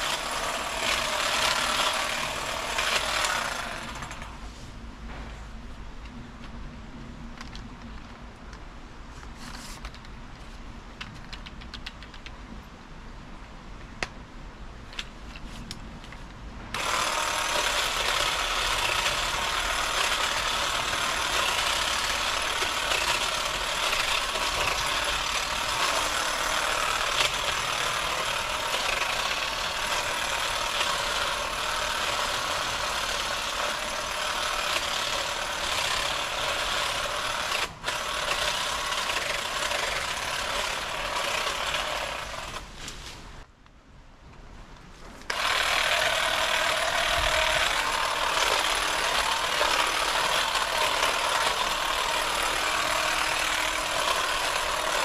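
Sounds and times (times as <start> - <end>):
hedge trimmer cutting shrubs: 0.0 - 4.4, 16.8 - 43.0, 45.2 - 55.0.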